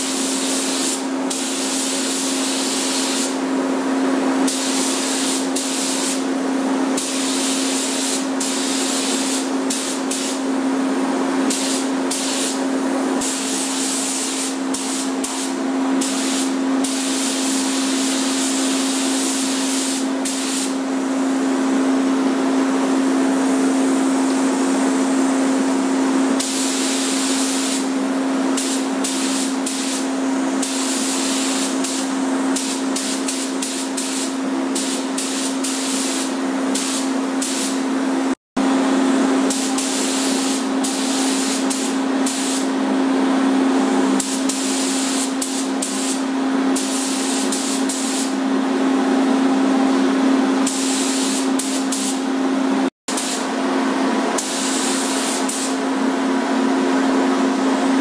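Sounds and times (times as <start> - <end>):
paint spray gun hissing: 0.0 - 3.4, 4.4 - 6.3, 6.9 - 10.5, 11.4 - 12.6, 13.2 - 20.9, 26.4 - 27.9, 28.5 - 37.9, 39.5 - 42.8, 44.2 - 48.4, 50.6 - 52.3, 53.1 - 53.5, 54.4 - 55.8.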